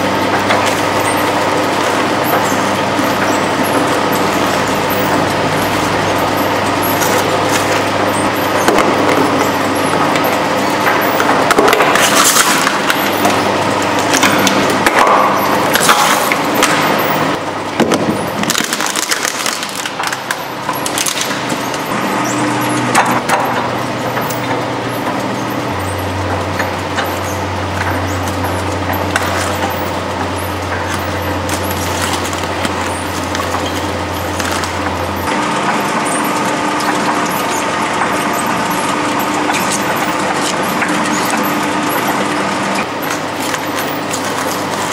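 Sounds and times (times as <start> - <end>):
shredder motor humming: 0.0 - 44.9
shredder crunching tin can: 18.4 - 21.5.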